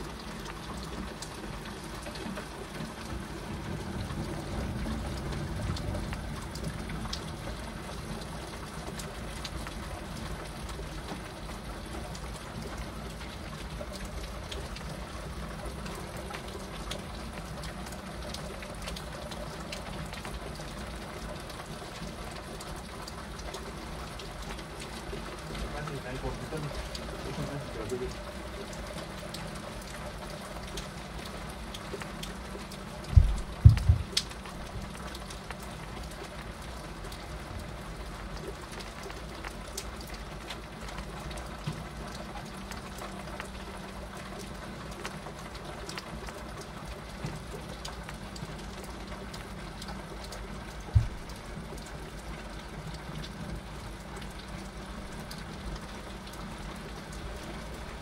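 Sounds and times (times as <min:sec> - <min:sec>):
heavy rain on window glass: 0:00.0 - 0:58.0
loud low thumps: 0:33.1 - 0:34.2.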